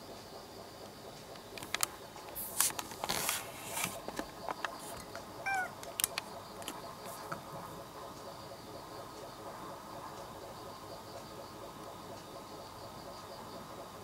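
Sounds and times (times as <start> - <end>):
cat meowing: 5.4 - 5.8.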